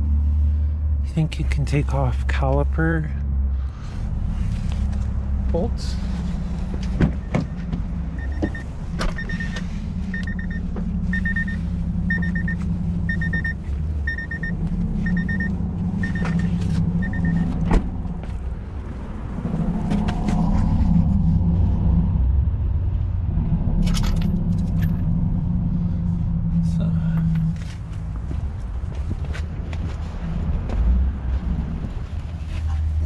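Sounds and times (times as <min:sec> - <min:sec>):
low vehicle rumble: 0:00.0 - 0:33.0
car warning chime beeping: 0:08.2 - 0:17.6.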